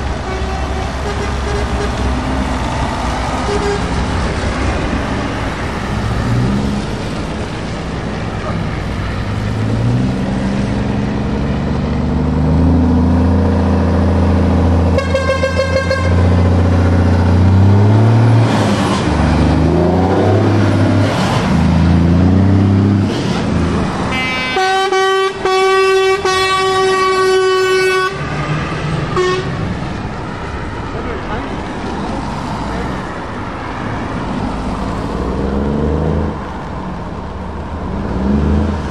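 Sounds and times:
truck diesel engines passing: 0.0 - 38.9
truck air horn: 0.2 - 2.2, 3.4 - 4.0, 14.9 - 16.4, 24.1 - 28.5, 29.1 - 29.6.

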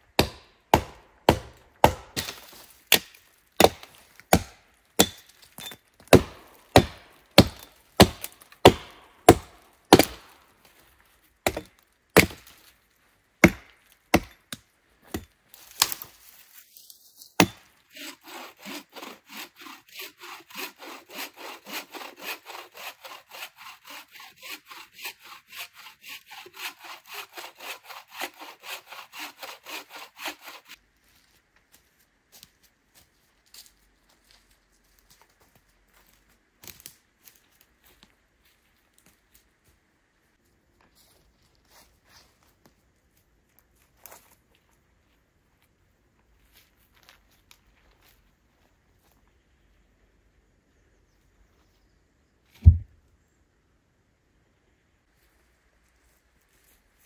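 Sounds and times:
hand saw cutting log: 0.2 - 5.3, 6.1 - 10.4, 11.4 - 12.5, 13.4 - 14.4, 17.4 - 30.8
axe chopping into tree trunk: 0.2 - 10.3, 11.4 - 12.5, 13.4 - 16.1, 17.4 - 17.7, 52.6 - 52.9.

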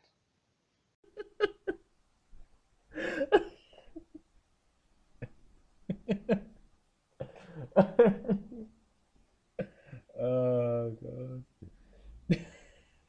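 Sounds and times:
man laughing: 1.1 - 1.8, 3.0 - 4.2, 5.9 - 6.5, 7.2 - 8.7, 10.2 - 11.4, 12.3 - 12.8.

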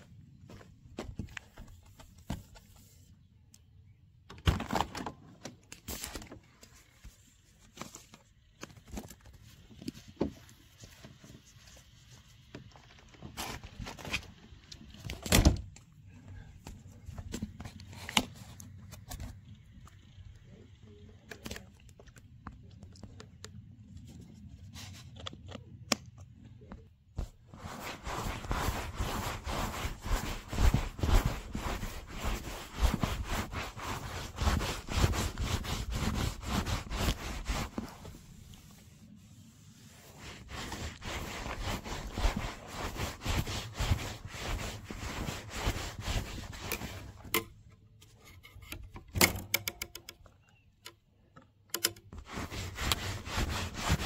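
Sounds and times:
cloth scuffing on fabric roof: 0.0 - 3.1, 27.2 - 38.5, 39.9 - 47.2, 52.2 - 54.0.

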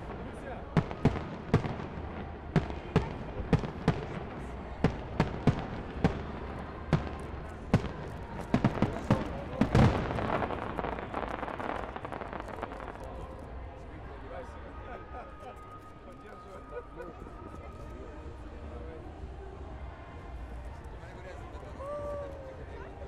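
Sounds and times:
fireworks bursting with sharp bangs: 0.0 - 13.7
fireworks crackling: 0.0 - 13.9.

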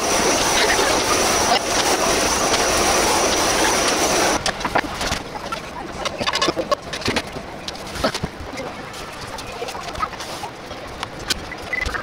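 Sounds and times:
butane torch hissing: 0.0 - 4.4.

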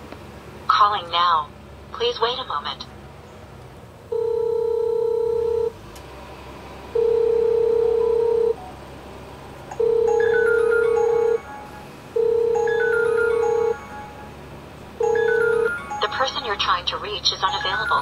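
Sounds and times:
doorbell calling beeps: 4.1 - 5.7, 7.0 - 8.6, 9.8 - 14.4, 15.0 - 18.0
smartphone ringtone: 4.1 - 5.7, 7.0 - 8.6, 9.8 - 14.4, 15.0 - 18.0.

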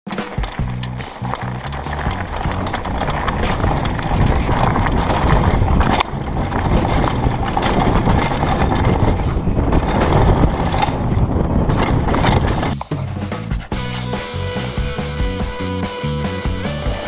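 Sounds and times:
tyres rolling on dirt: 0.1 - 13.4
bike rattling and knocking: 0.1 - 15.6
wind buffeting microphone: 0.4 - 13.9.

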